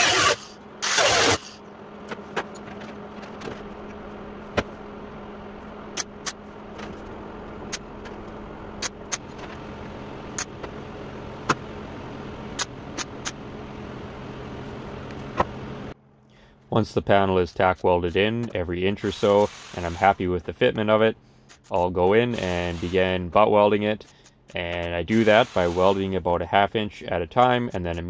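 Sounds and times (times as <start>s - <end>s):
welder zaps: 0.0s - 1.6s, 25.1s - 26.1s
steady hum: 0.0s - 28.0s.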